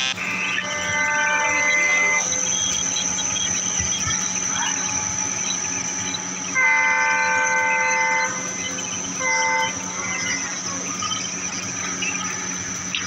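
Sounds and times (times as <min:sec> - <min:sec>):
locomotive horn blasts: 0:00.0 - 0:02.2, 0:06.6 - 0:08.4, 0:09.2 - 0:09.9.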